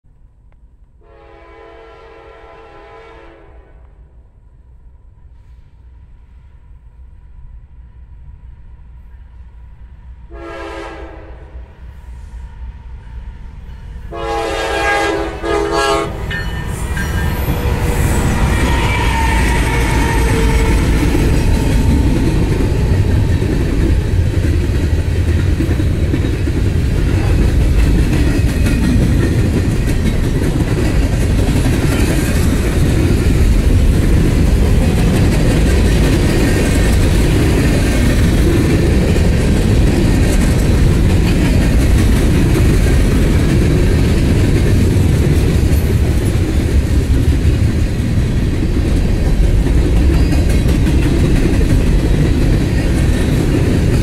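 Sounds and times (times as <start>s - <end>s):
locomotive air horn: 1.0s - 4.0s, 10.3s - 11.6s, 14.1s - 16.3s, 18.4s - 21.0s
train wheels rumbling on rails: 4.7s - 54.0s.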